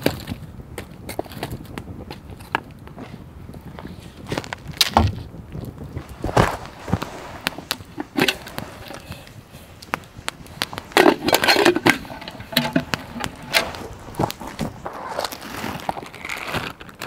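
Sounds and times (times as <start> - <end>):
campfire crackling and popping: 0.0 - 17.0
metal pot lid clinking: 10.9 - 13.7.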